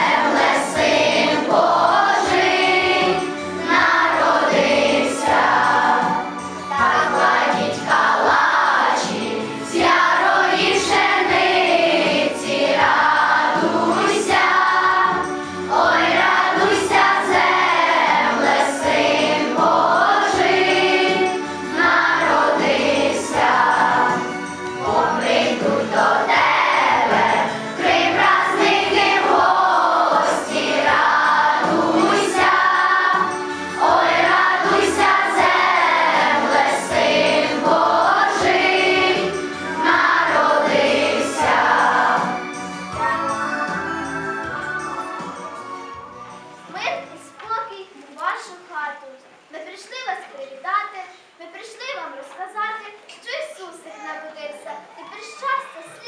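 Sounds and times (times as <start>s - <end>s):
choir singing with music: 0.0s - 47.4s.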